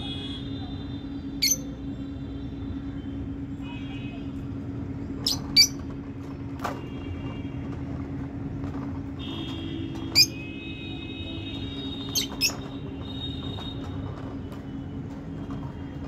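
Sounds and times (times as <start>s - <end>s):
lovebirds shrill calls: 1.4s - 1.7s, 5.2s - 5.8s, 10.1s - 10.4s, 12.0s - 12.7s.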